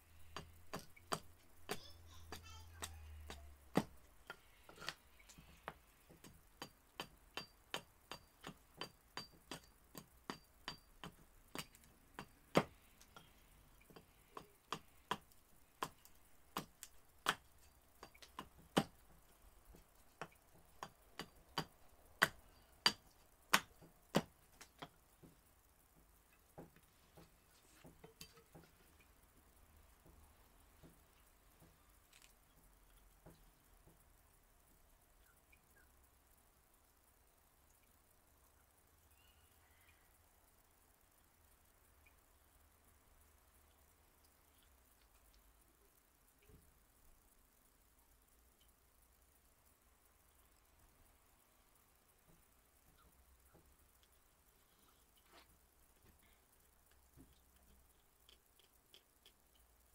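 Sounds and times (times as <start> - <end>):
axe knocking on wood: 0.4 - 5.0, 6.2 - 12.7, 16.6 - 19.0.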